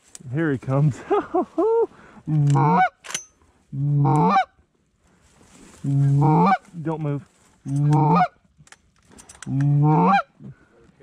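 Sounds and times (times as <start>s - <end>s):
goose honking: 2.5s - 3.0s, 4.0s - 4.5s, 5.8s - 6.8s, 7.8s - 8.4s, 9.7s - 10.4s.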